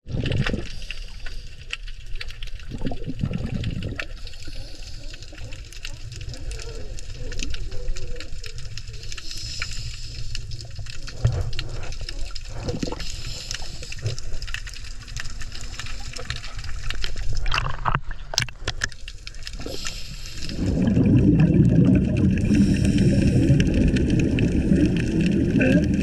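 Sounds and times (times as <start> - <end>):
low rumbling bubble noise: 0.0 - 0.9, 2.6 - 4.3, 10.7 - 26.0
underwater sloshing and gurgling: 0.0 - 26.0.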